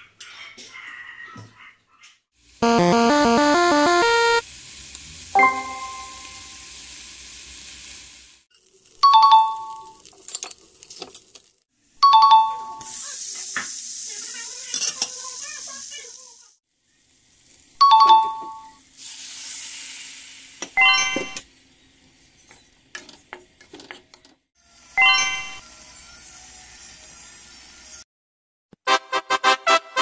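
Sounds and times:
livers sizzling in hot oil: 4.4 - 12.0, 12.8 - 17.8, 18.7 - 28.0.

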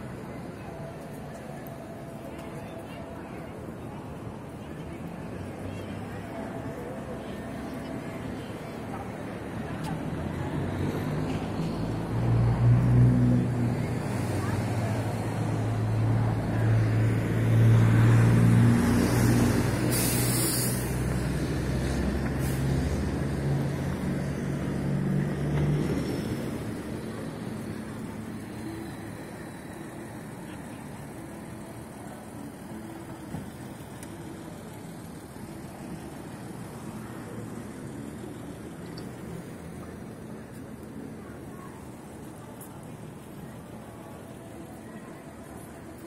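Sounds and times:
steady traffic hum: 0.0 - 46.0
vehicle engine running close: 3.5 - 46.0
short hiss: 19.9 - 21.0.

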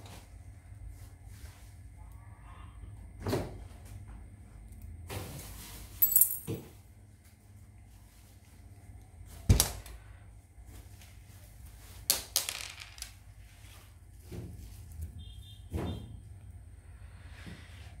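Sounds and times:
sharp metal clinks: 6.0 - 6.6.

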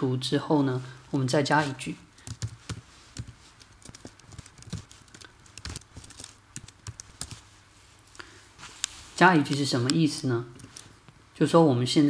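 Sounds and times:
computer keyboard typing: 2.2 - 7.5.

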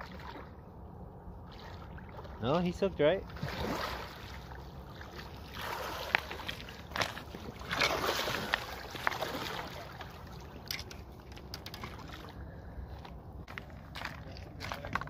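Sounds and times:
fish thrashing and splashing: 3.4 - 12.4.

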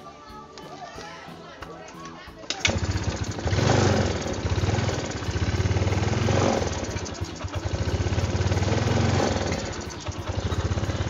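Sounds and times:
scooter engine idling: 2.5 - 11.0.

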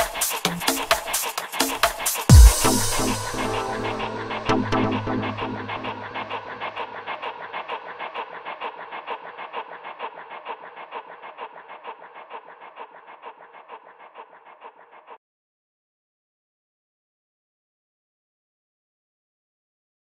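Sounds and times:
electronic music with pulsing beat: 0.0 - 6.9.

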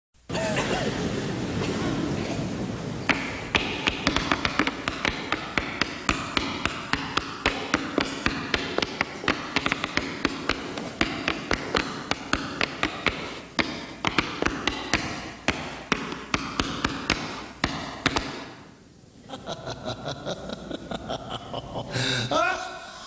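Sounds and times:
tap shoes on wooden floor: 3.1 - 18.4.

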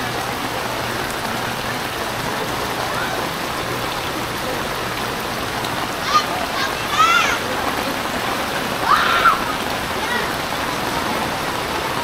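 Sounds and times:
rain falling on water: 0.0 - 12.0.

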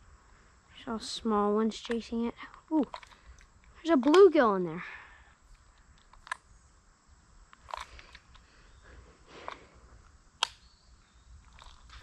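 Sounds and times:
faint clicks and crackles: 11.4 - 12.0.

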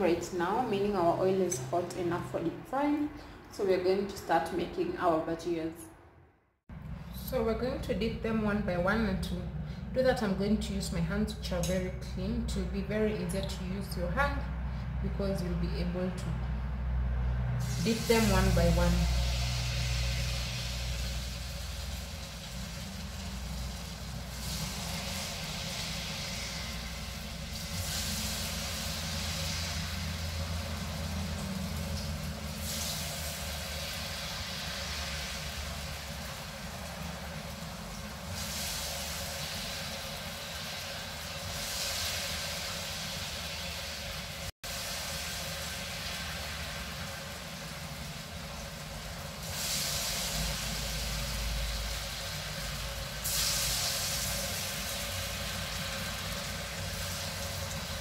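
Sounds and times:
potato slices deep-frying in oil: 17.6 - 58.0.

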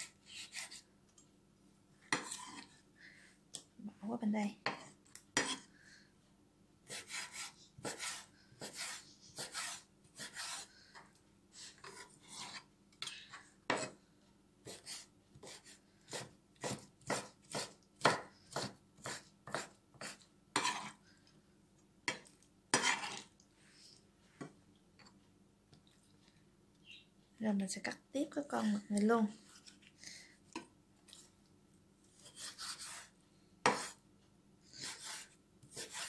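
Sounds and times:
knife chopping on wooden board: 15.4 - 20.9, 33.6 - 34.0
knife slicing strokes: 32.2 - 33.1, 34.8 - 36.0.

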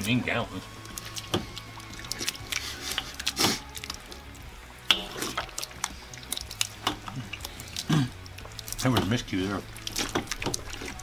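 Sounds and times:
faint background music: 0.0 - 11.0
people slurping and smacking food: 0.6 - 11.0
spoons clicking on metal bowl: 4.9 - 7.8.

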